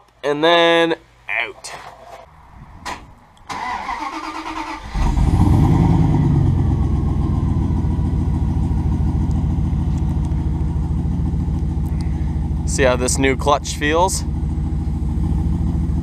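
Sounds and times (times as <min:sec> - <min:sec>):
engine starter cranking: 0:03.5 - 0:05.6
engine idling loudly: 0:05.2 - 0:16.0.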